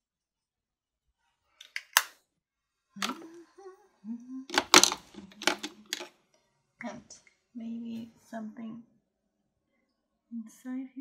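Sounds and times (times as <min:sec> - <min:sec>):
woman murmuring: 0:03.0 - 0:04.7.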